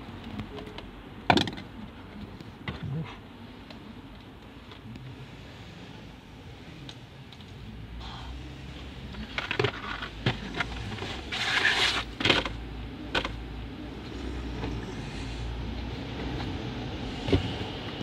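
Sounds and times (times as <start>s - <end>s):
scraping rustle: 9.2s - 12.5s.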